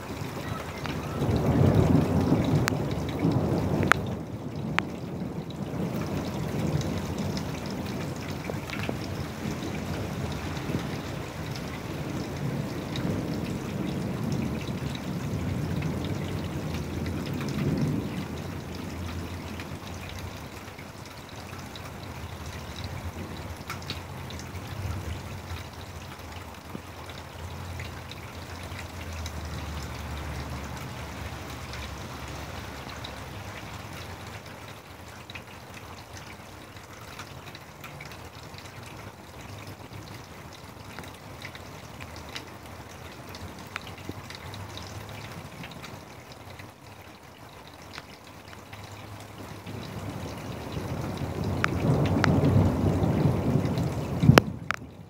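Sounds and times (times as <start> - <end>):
raindrops ticking: 0.0 - 55.0
steady rain: 0.0 - 55.0
low thunder rumble: 0.2 - 20.5, 49.6 - 55.0.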